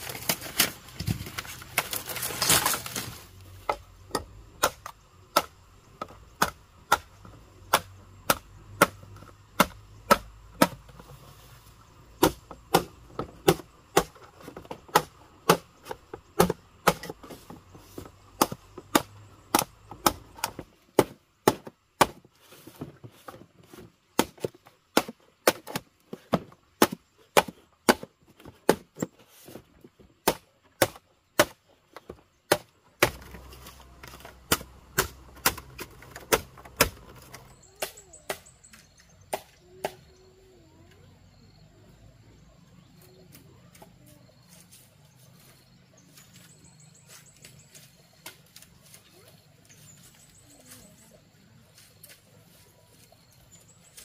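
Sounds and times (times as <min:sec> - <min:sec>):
machete chopping bamboo: 0:00.0 - 0:11.1, 0:12.1 - 0:22.9, 0:23.7 - 0:29.6, 0:30.2 - 0:40.1.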